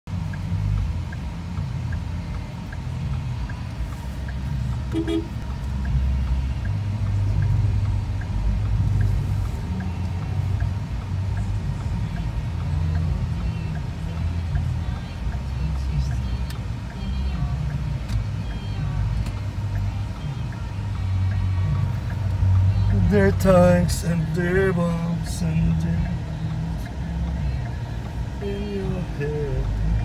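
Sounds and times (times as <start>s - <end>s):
engine and road rumble: 0.0s - 30.0s
faint regular ticking: 0.1s - 30.0s
car horn toot: 4.8s - 5.4s.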